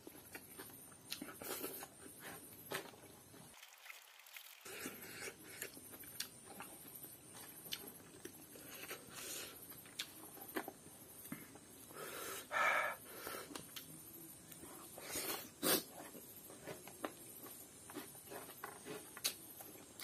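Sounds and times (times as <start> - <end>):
wet chewing and lip smacks: 5.1 - 9.0, 9.7 - 10.8.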